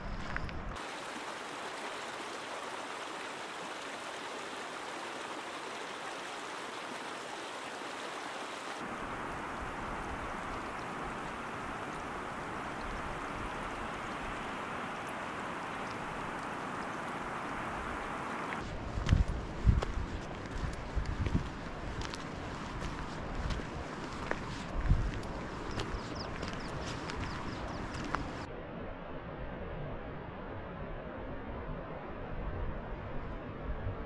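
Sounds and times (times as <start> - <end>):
mountain stream rushing: 0.8 - 19.3, 20.1 - 28.5.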